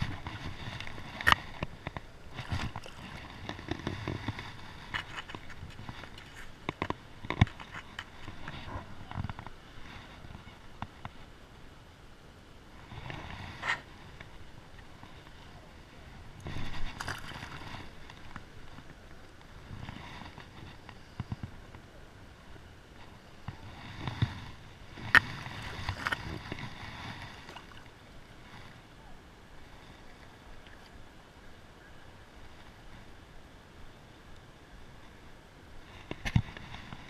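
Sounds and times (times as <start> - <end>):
river water splashing: 0.0 - 11.4, 12.6 - 20.7, 23.3 - 33.9
fish slapping water: 16.8 - 17.7.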